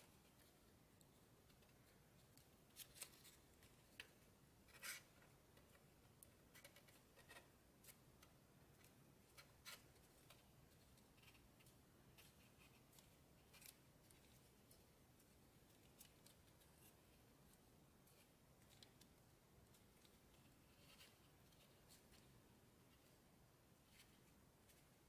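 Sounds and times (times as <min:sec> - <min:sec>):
quiet room hum: 0:00.0 - 0:25.0.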